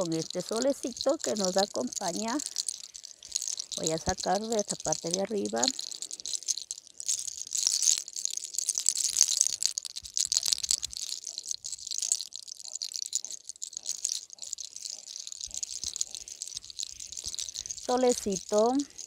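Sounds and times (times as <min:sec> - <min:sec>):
hair crackling between fingers: 0:00.0 - 0:19.0.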